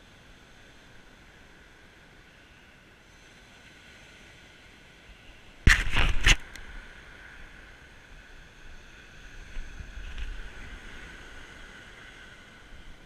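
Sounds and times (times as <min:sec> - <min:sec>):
short loud rustle: 0:05.6 - 0:06.5
surf breaking on beach: 0:05.6 - 0:07.4.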